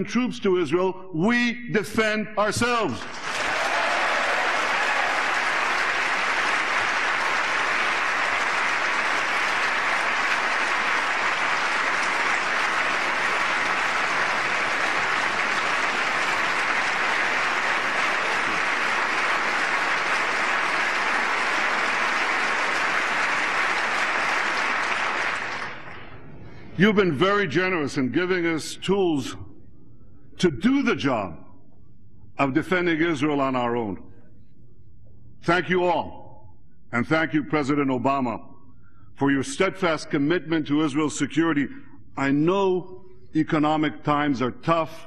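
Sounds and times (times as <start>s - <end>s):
large audience applauding: 3.0s - 26.1s.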